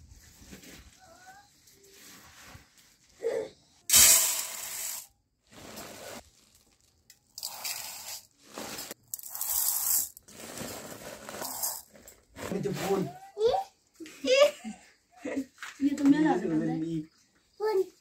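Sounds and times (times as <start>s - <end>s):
rice poured into steel bowl: 3.9s - 11.8s
plastic sack rustling: 5.3s - 13.1s.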